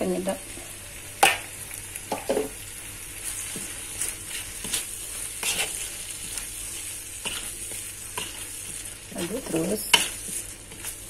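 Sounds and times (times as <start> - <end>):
frying sizzle: 0.0 - 11.0
metal spatula scraping wok: 3.3 - 11.0.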